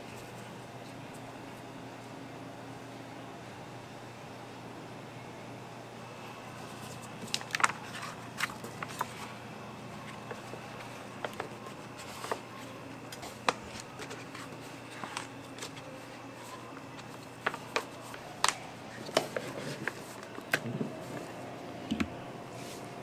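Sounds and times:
steady background hum: 0:00.0 - 0:23.0
paper crinkling: 0:06.6 - 0:21.4.

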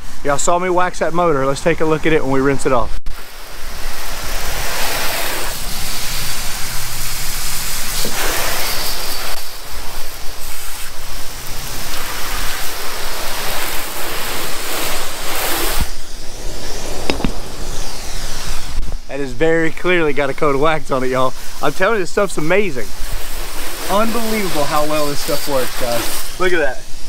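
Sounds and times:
hose water spraying: 0:00.0 - 0:27.0.

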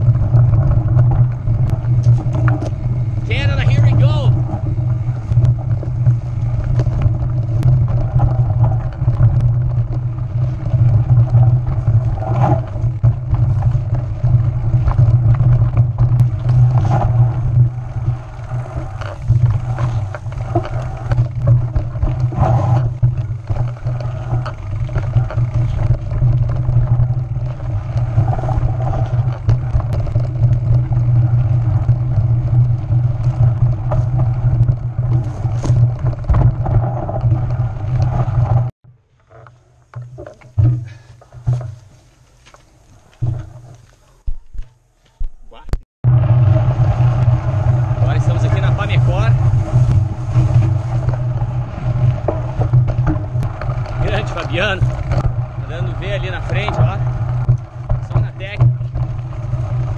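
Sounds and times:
wind rumbling on microphone: 0:00.0 - 0:38.8, 0:39.8 - 0:59.9
bike rattling over bumps: 0:00.0 - 0:59.9.

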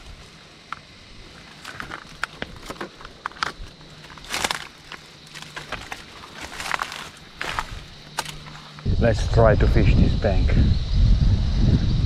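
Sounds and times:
leaves rustling: 0:00.0 - 0:08.9
footsteps crunching on dry leaves: 0:01.2 - 0:08.9.

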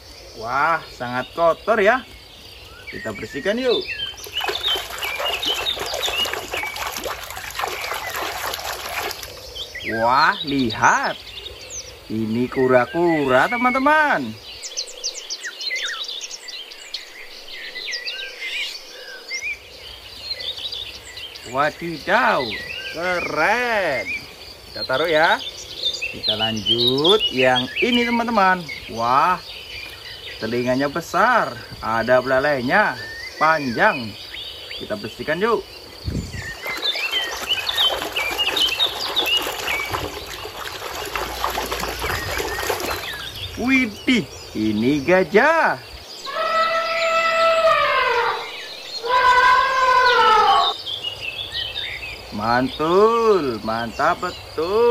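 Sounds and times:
small birds chirping: 0:00.0 - 0:54.9
water splashing in a tub: 0:03.7 - 0:09.9, 0:36.1 - 0:44.2.

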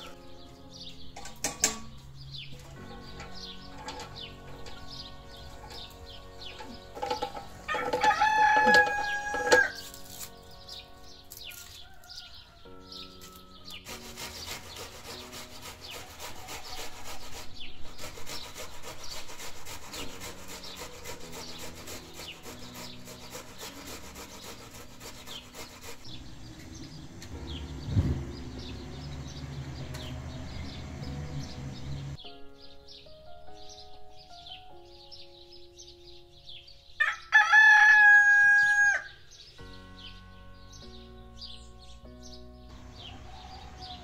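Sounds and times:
background music: 0:00.0 - 0:44.0
birds chirping: 0:00.0 - 0:44.0
vegetable grating: 0:02.7 - 0:12.0, 0:13.2 - 0:27.0.

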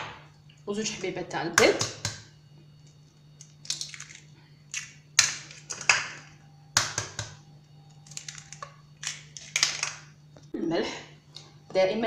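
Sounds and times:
eggshells cracking: 0:02.8 - 0:07.3, 0:08.0 - 0:10.2.

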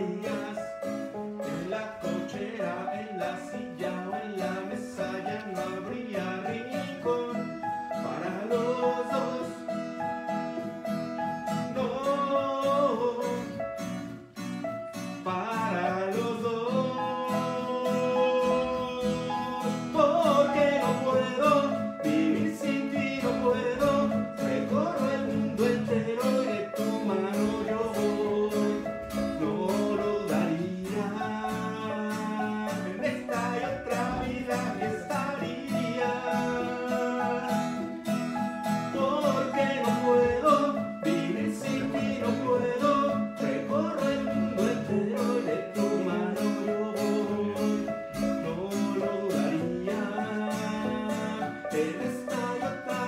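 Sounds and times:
man singing: 0:00.0 - 0:13.9, 0:15.2 - 0:53.0
acoustic guitar strumming: 0:00.0 - 0:53.0
electronic keyboard: 0:16.4 - 0:53.0.

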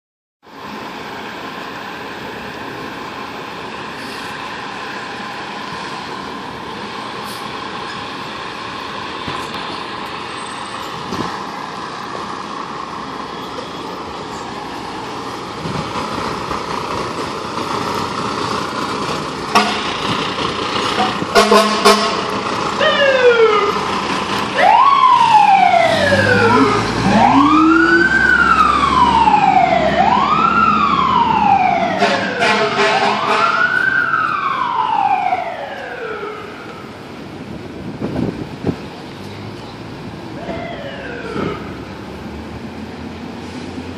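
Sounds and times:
diesel engine running: 0:03.5 - 0:33.3
air horn blasts: 0:19.5 - 0:19.9, 0:21.0 - 0:22.3, 0:31.9 - 0:33.7
siren wailing: 0:22.8 - 0:23.8, 0:24.6 - 0:36.8, 0:40.4 - 0:41.8.

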